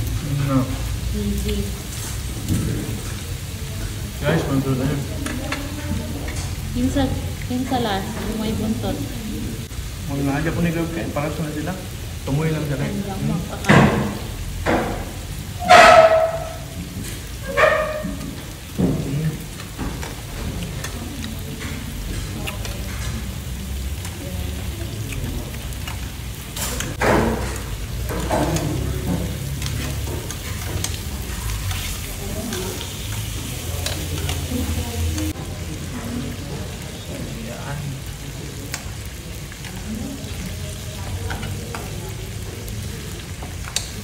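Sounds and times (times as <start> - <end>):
meat sizzling on grill pan: 0.0 - 44.0
metal tongs clicking on pan: 19.5 - 35.4, 41.0 - 41.9, 43.4 - 44.0.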